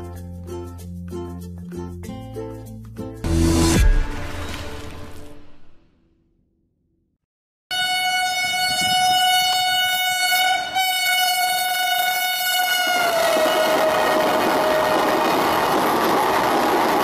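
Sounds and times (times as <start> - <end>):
train horn blast: 7.7 - 15.5
passing train rushing: 8.9 - 17.0.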